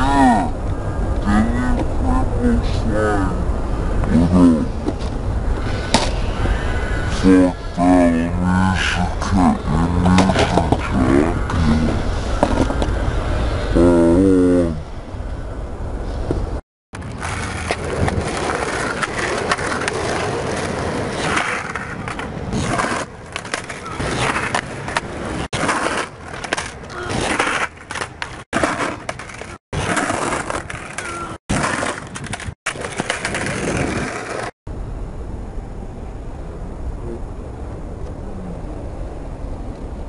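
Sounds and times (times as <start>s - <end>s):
skateboard scraping and sliding: 4.4s - 13.8s, 16.0s - 34.5s
skateboard wheels rolling on asphalt: 9.5s - 13.7s, 15.2s - 34.5s.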